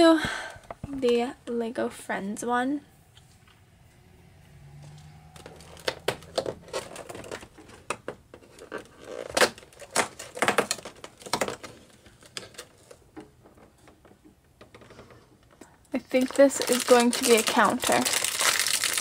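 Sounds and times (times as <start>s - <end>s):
cardboard tearing and crackling: 5.4s - 13.0s, 16.1s - 19.0s.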